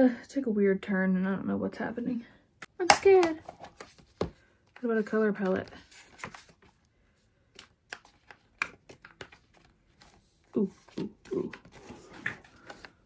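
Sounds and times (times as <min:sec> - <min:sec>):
paper rustling: 0:05.5 - 0:13.0.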